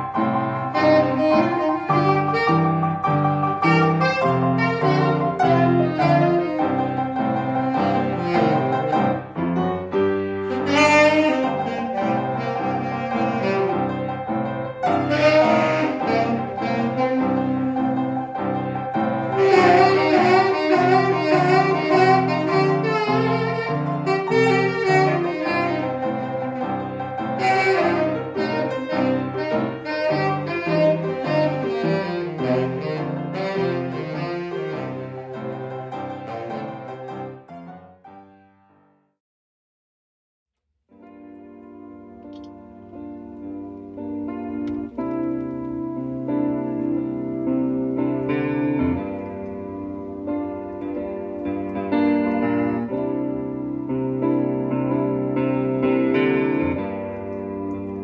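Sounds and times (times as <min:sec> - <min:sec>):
bass line: 0:00.0 - 0:35.1
saxophone lead line: 0:00.0 - 0:37.6, 0:42.3 - 0:58.0.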